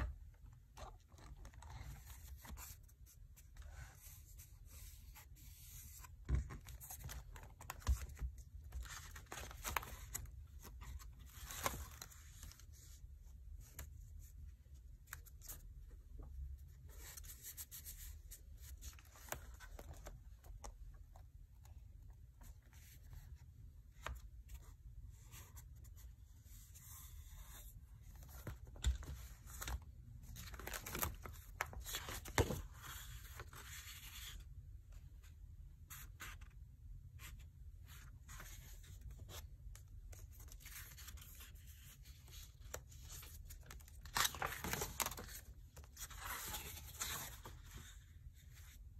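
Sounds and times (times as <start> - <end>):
pages turning: 40.2 - 48.0
paper rustling: 40.2 - 48.8.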